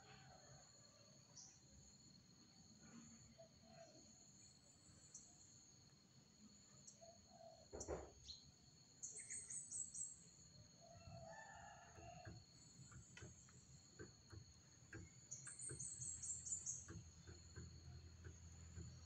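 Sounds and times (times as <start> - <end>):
faint rooster crowing: 0.0 - 1.5, 10.8 - 12.8
high insect drone: 0.0 - 7.5.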